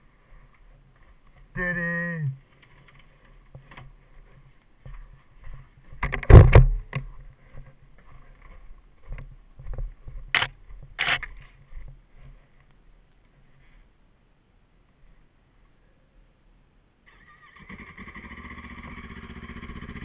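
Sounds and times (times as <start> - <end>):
heavy thump: 6.0 - 7.0.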